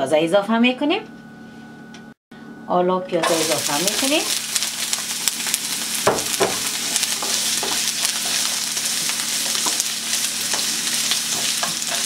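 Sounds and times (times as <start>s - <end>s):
onion sizzling in a frying pan: 3.2s - 12.0s
spatula scraping a pan: 6.9s - 12.0s.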